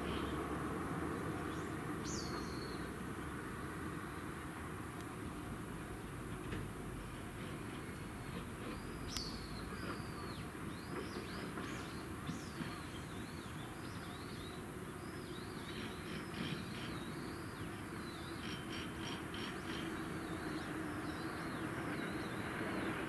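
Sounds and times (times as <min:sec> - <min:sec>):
approaching train hum: 0:00.0 - 0:23.0
low town background: 0:00.0 - 0:23.0
small birds chirping: 0:01.1 - 0:04.3, 0:08.1 - 0:23.0.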